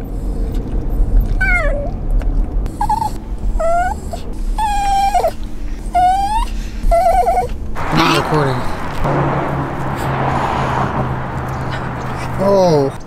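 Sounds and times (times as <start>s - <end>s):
car road rumble: 0.0s - 13.0s
dog whining: 1.3s - 2.0s, 2.7s - 8.3s.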